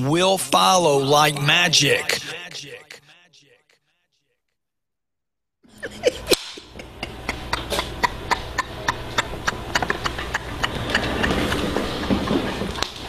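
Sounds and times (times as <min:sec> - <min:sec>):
low steady hum: 0:05.7 - 0:13.0.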